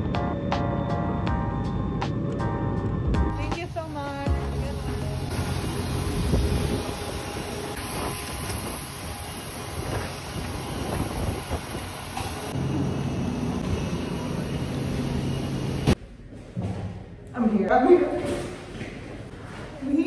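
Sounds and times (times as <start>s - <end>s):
aircraft and ground equipment running: 0.0s - 16.0s.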